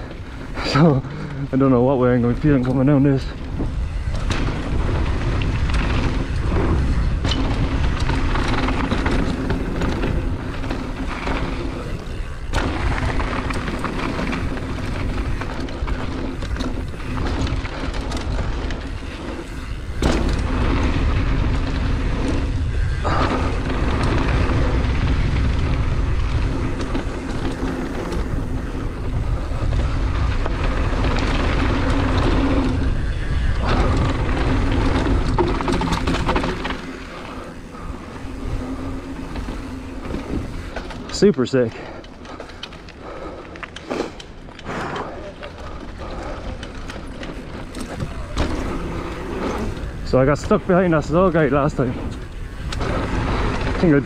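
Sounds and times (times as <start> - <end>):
wind buffeting microphone: 0.0 - 43.5, 44.2 - 54.0
bike tyres rolling on dirt: 0.0 - 54.0.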